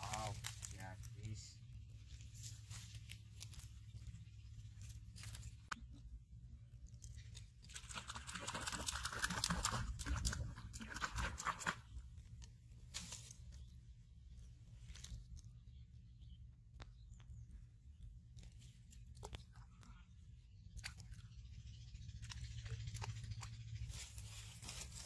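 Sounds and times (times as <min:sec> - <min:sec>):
dry leaves crackling and rustling: 0:00.0 - 0:05.7, 0:12.6 - 0:13.7, 0:23.8 - 0:25.0.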